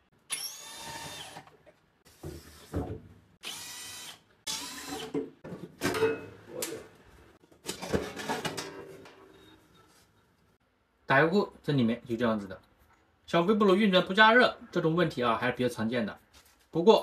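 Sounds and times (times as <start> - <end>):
cordless drill whirring: 0.3 - 1.5, 3.4 - 5.1.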